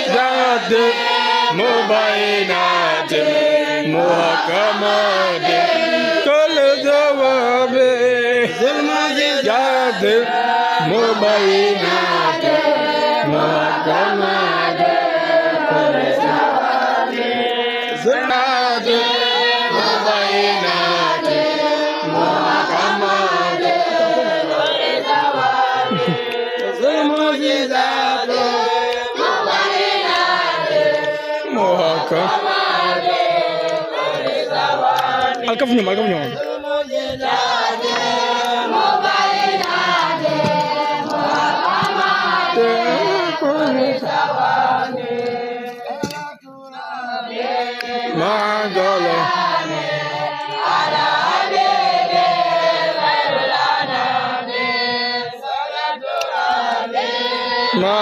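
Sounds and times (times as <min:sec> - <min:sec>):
group of voices chanting: 0:00.0 - 0:58.0.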